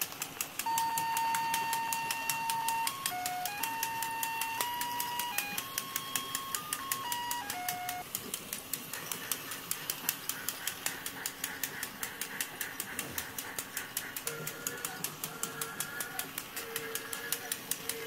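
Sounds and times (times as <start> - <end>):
toy train rapid clicking: 0.0 - 18.0
tinkly electronic tune: 0.7 - 8.0.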